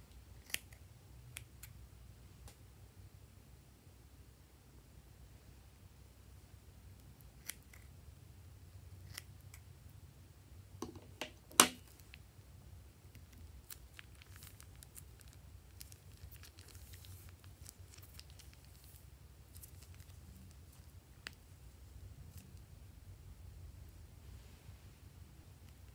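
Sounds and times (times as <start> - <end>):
sharp clicks and taps: 10.8 - 11.8
faint crackling of slime: 13.0 - 22.7.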